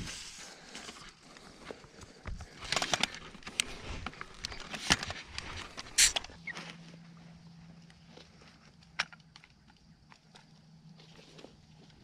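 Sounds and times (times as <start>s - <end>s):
gear clicks and knocks: 0.9s - 6.4s.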